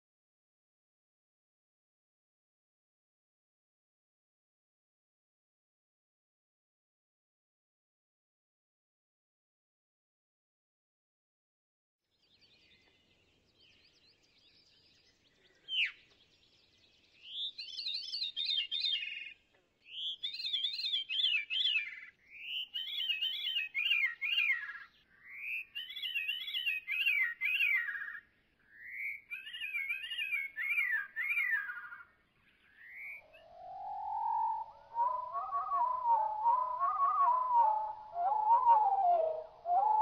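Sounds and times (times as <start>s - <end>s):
slowed bird song flute-like notes: 12.2s - 40.0s.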